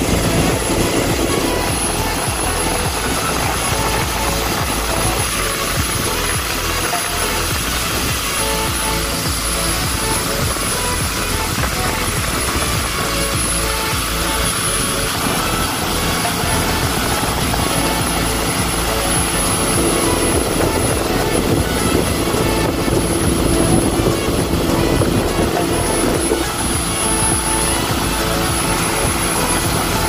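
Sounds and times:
boat wake rushing: 0.0s - 30.0s
motorboat engine running: 0.0s - 30.0s
wind: 0.0s - 30.0s.

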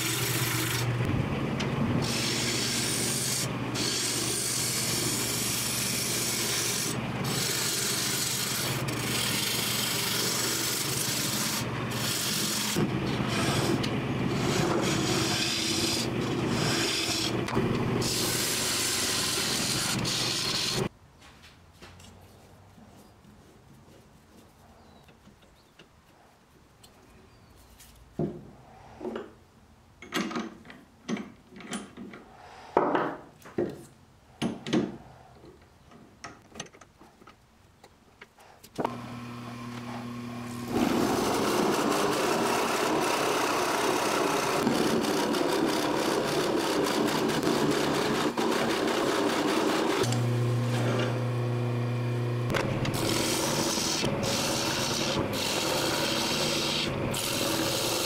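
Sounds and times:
lathe motor humming: 0.0s - 20.9s, 38.9s - 58.0s
drill bit boring into spinning wood: 2.0s - 20.9s, 40.4s - 51.1s, 52.5s - 58.0s
gouge cutting wood: 2.0s - 20.9s, 38.9s - 51.2s, 52.5s - 58.0s.

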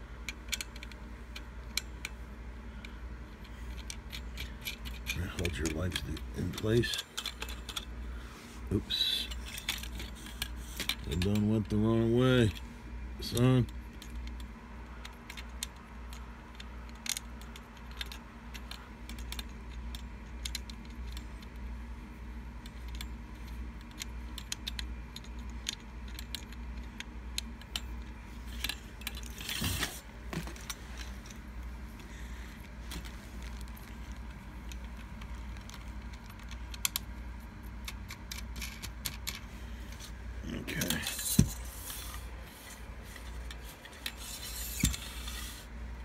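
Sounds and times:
steady low hum: 0.0s - 46.0s
tripod legs clicking and rattling: 0.2s - 2.3s, 2.9s - 12.6s, 13.4s - 21.8s, 22.5s - 46.0s.

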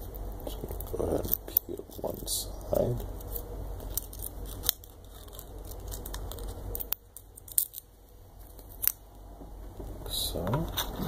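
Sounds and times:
tape peeling clicks and crackles: 2.9s - 9.2s.

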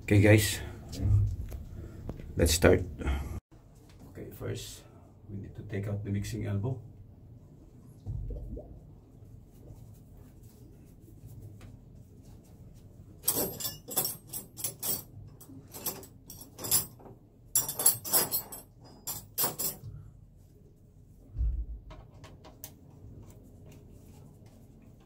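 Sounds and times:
metal tools clinking: 13.2s - 19.9s.

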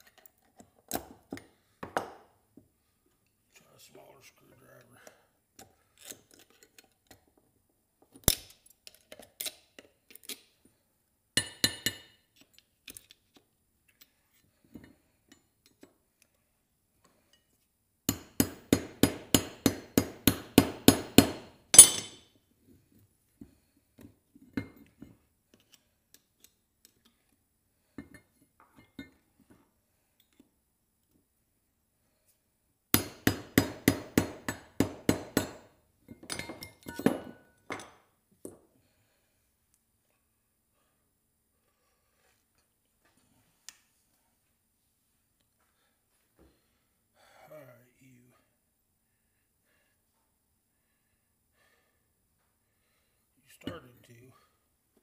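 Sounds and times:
metal clinks: 21.7s - 22.3s
metal tools tapping metal: 21.8s - 22.2s, 35.4s - 37.9s.

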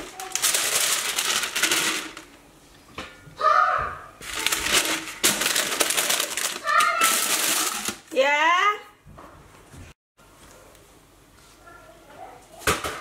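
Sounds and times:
parchment paper crinkling: 0.0s - 2.1s, 4.2s - 8.0s.

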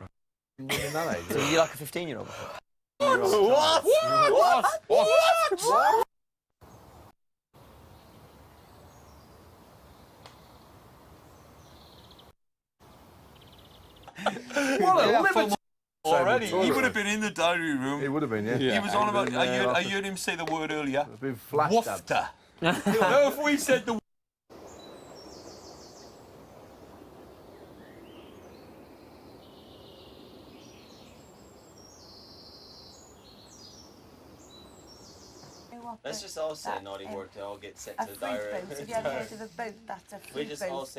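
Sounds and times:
birds chirping: 6.6s - 15.5s, 24.5s - 40.9s.

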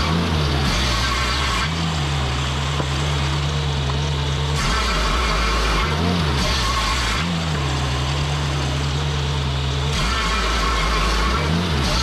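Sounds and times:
sawmill engine running: 0.0s - 12.0s.

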